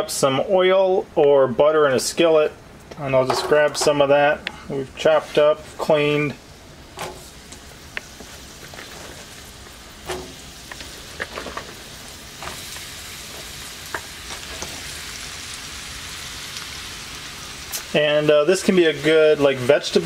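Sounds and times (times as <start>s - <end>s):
vegetables sizzling in hot oil: 5.2s - 20.0s.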